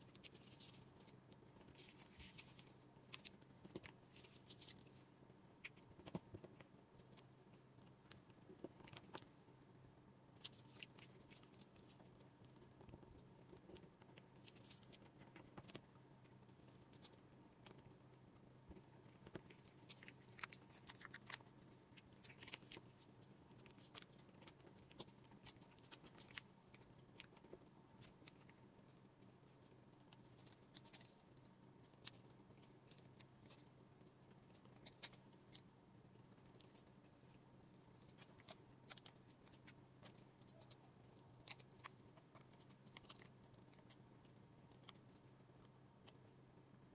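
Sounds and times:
small paper crackles: 0.0 - 5.0, 10.3 - 46.3
paper rustling and crinkling: 0.1 - 5.0.

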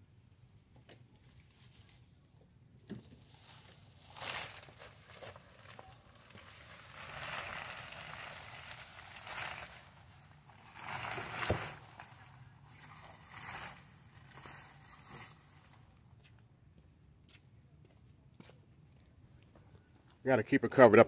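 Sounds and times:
fabric cover rustling: 3.4 - 15.9.

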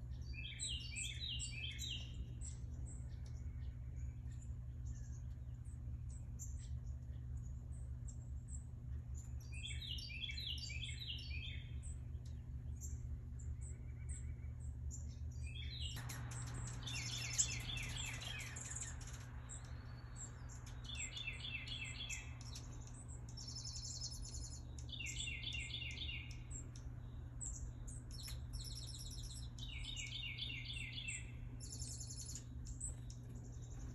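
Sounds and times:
songbirds singing: 0.0 - 33.9
steady low hum: 0.0 - 33.9.

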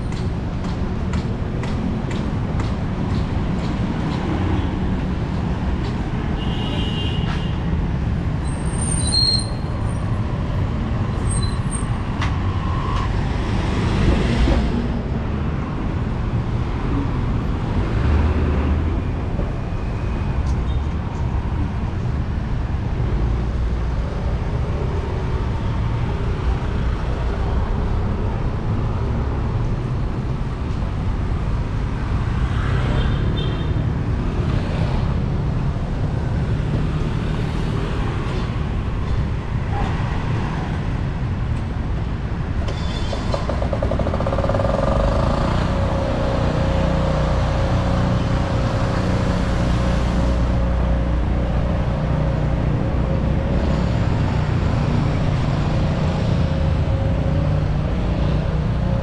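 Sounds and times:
vehicles passing: 0.0 - 59.0
brief high squeak: 8.6 - 9.7, 11.2 - 11.9, 42.7 - 43.4.

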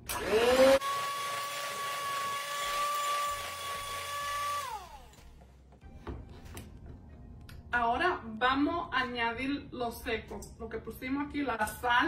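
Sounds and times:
electric hand mixer whining: 0.0 - 5.3.

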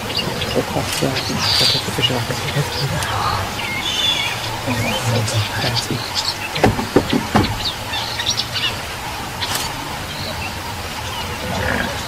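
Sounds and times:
birds chirping and calling: 0.0 - 12.0
sharp thuds: 6.6 - 7.8.

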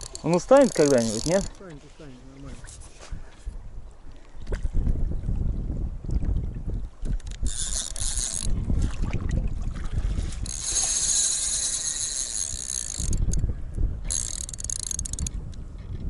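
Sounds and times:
spinning reel buzzing: 0.0 - 1.6, 7.3 - 8.6, 10.4 - 13.4, 14.1 - 15.4
wind: 0.0 - 16.0.

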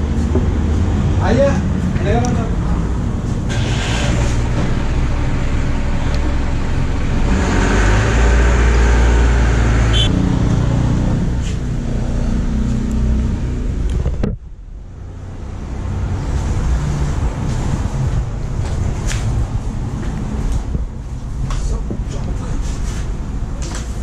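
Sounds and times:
vehicle engine rumbling: 0.0 - 24.0.

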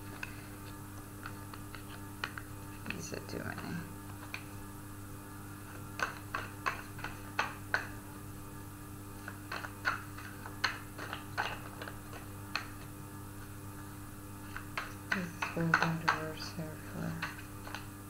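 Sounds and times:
cards being shuffled: 0.0 - 3.0, 3.6 - 4.6, 5.6 - 7.9, 9.1 - 13.6, 14.4 - 17.9.

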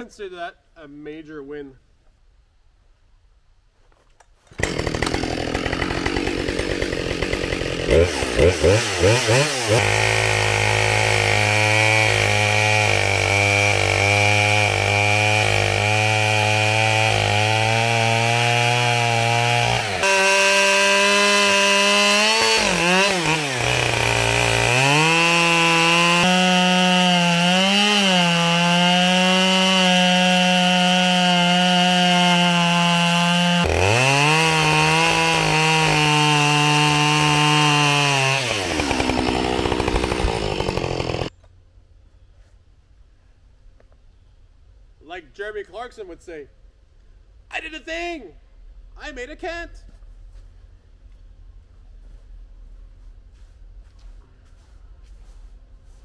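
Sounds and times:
chainsaw ripping through wood: 4.4 - 41.4.

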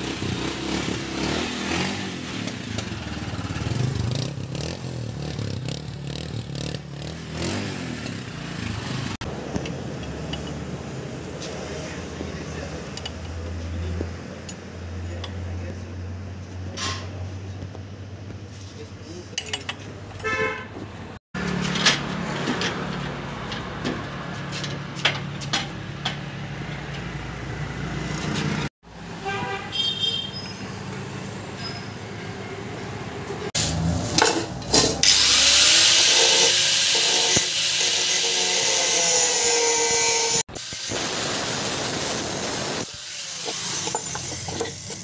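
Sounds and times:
angle grinder cutting metal: 33.6 - 45.0
wrench clinking on metal pipe: 43.5 - 45.0.

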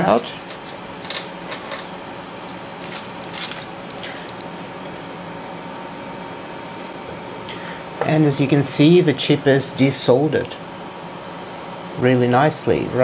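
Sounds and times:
exhaust fan running: 0.0 - 13.0
handling rustles and clicks: 0.3 - 5.1.

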